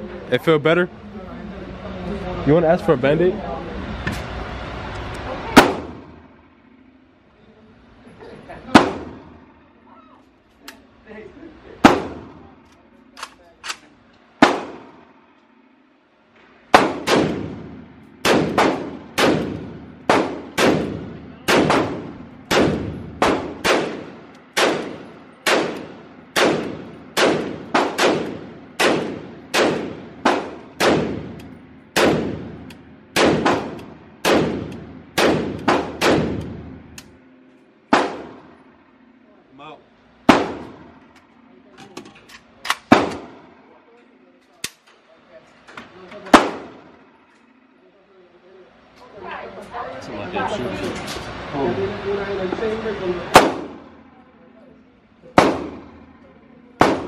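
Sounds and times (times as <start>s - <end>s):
echoing gunshots: 5.6s - 6.2s, 8.7s - 9.4s, 11.8s - 12.4s, 14.4s - 15.1s, 16.7s - 36.8s, 37.9s - 38.6s, 40.2s - 41.0s, 42.8s - 43.6s, 46.3s - 47.0s, 53.3s - 53.9s, 55.3s - 56.1s, 56.8s - 57.0s.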